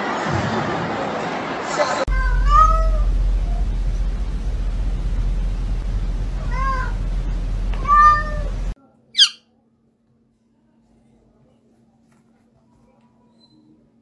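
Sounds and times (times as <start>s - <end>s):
cat meowing: 2.1s - 3.1s, 6.4s - 7.0s, 7.8s - 8.5s
steady low hum: 2.1s - 8.8s
brief high-pitched squeak: 13.2s - 13.8s.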